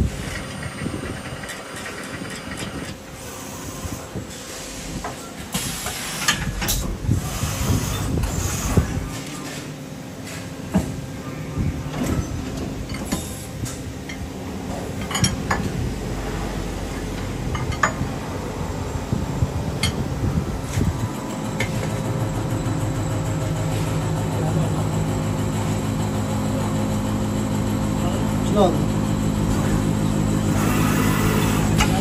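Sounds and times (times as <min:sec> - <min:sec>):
machine hum: 0:06.4 - 0:32.0.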